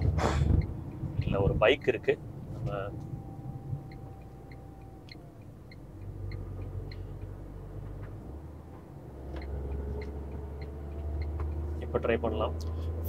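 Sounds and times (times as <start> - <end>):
car engine drone in cabin: 0.0 - 13.0
light regular ticking: 0.0 - 13.0.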